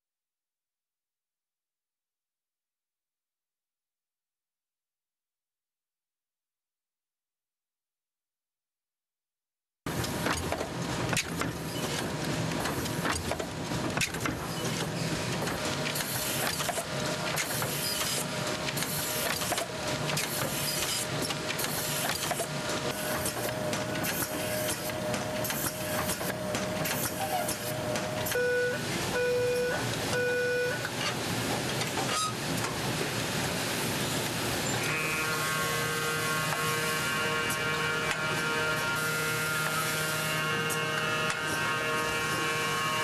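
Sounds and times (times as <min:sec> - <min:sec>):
machine mechanical clatter: 0:09.9 - 0:28.4
short beeps: 0:28.4 - 0:30.8.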